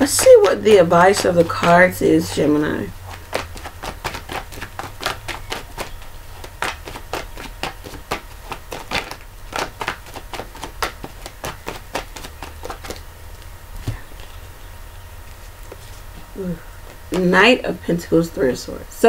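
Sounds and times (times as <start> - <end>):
cards being shuffled: 0.0 - 14.4.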